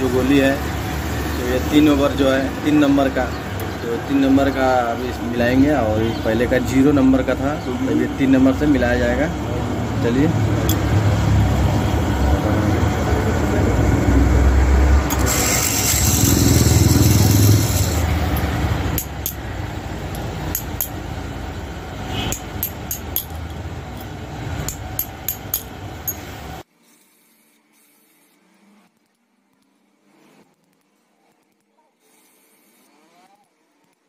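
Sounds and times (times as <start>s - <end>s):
machine motor humming: 6.7s - 20.5s
harsh high hiss: 15.1s - 18.5s
metal parts clinking: 15.1s - 19.4s, 20.1s - 21.0s, 22.3s - 26.3s.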